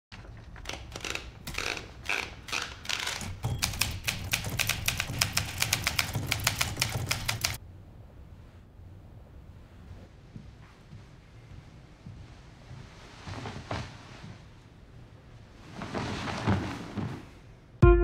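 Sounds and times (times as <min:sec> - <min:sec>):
manual typewriter typing: 0:02.5 - 0:07.6.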